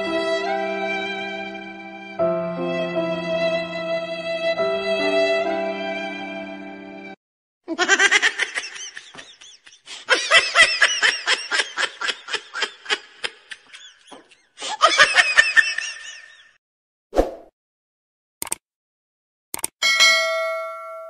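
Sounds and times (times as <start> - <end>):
high-pitched laughter: 7.7 - 16.5.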